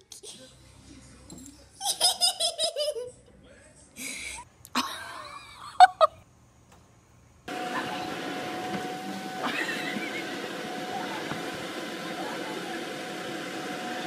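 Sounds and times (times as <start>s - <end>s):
electric blower rushing: 7.5s - 14.0s.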